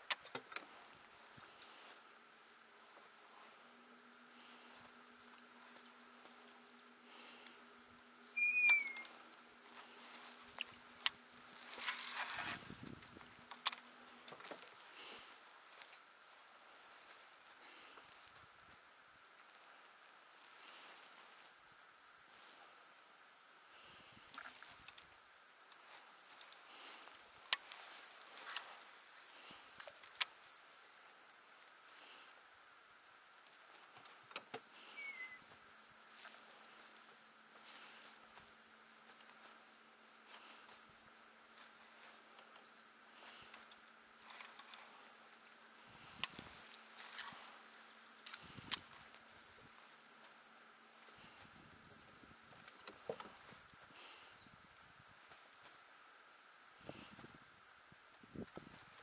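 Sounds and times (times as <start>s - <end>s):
faint hiss: 0.0s - 59.0s
bird whistled call: 8.3s - 9.1s, 34.9s - 35.4s
brief rustle: 9.8s - 14.7s.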